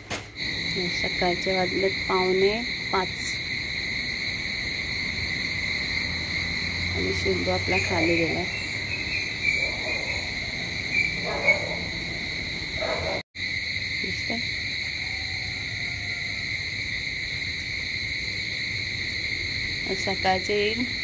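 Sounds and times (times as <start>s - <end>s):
crickets trilling: 0.0s - 21.0s
faint distant calls: 0.5s - 13.2s.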